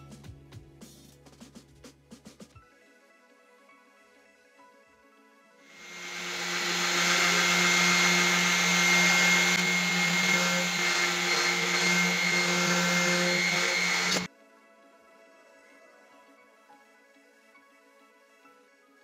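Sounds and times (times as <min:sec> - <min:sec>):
electric polisher whining: 0:05.7 - 0:14.3.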